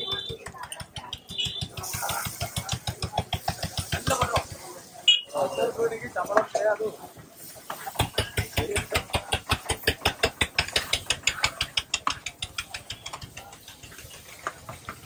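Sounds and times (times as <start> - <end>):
metal spatulas clanking on griddle: 7.7 - 14.1.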